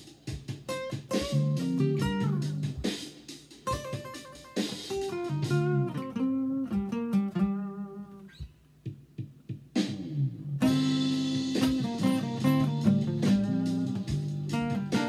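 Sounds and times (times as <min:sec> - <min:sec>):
acoustic guitar playing blues: 0:00.7 - 0:03.0, 0:03.6 - 0:08.4, 0:10.1 - 0:15.0.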